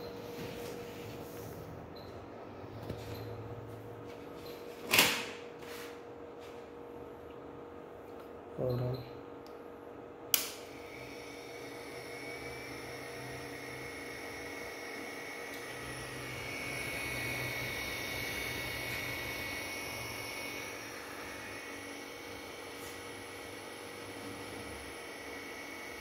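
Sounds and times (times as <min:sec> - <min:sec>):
cooling fan whirring with whine: 0:00.0 - 0:26.0.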